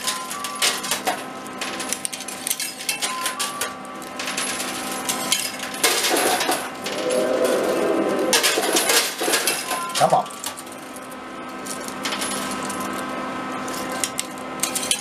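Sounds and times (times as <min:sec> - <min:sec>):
coins clinking and clattering: 0:00.0 - 0:07.4, 0:08.4 - 0:15.0
machine hum: 0:06.7 - 0:09.8.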